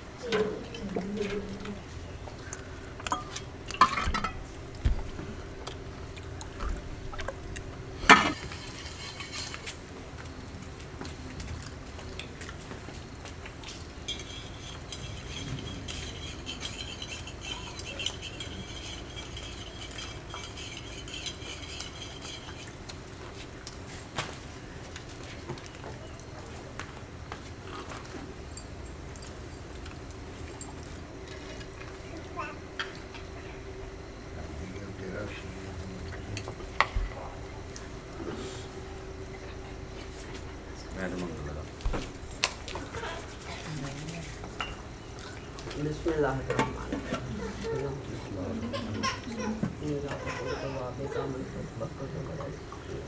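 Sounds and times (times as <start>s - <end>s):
clinks of bowls and spoons: 14.0s - 22.6s.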